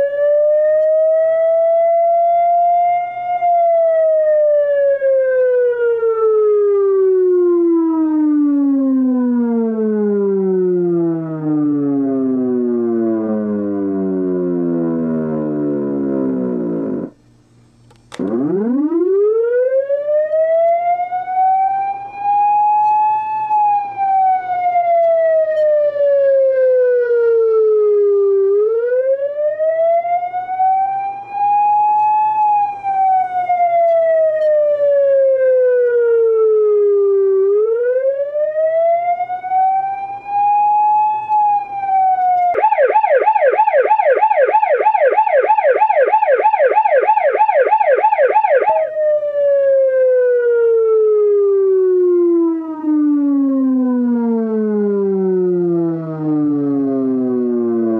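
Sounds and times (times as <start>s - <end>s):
police siren wailing: 0.0s - 17.2s, 18.1s - 57.9s
siren fast yelp: 18.2s - 26.9s, 28.5s - 53.4s.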